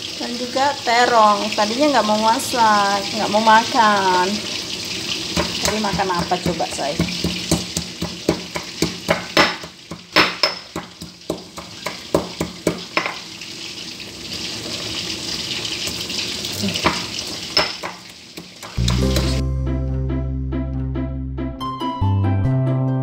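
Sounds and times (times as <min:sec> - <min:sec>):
oil sizzling: 0:00.0 - 0:19.5
stone pestle pounding in mortar: 0:05.3 - 0:13.2, 0:16.8 - 0:19.4.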